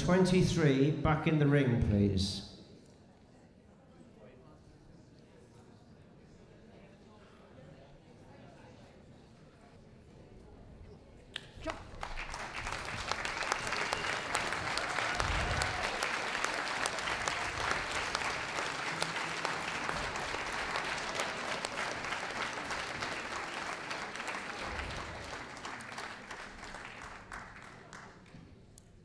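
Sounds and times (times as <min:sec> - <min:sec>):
audience applauding: 0:11.4 - 0:28.5.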